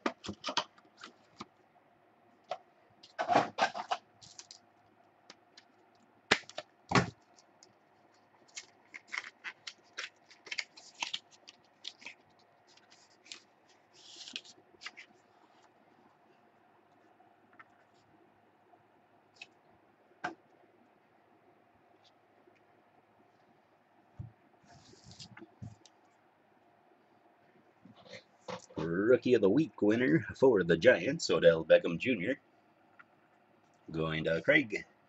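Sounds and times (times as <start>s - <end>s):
packaging crackling and rustling: 3.7s - 4.6s, 5.6s - 15.7s.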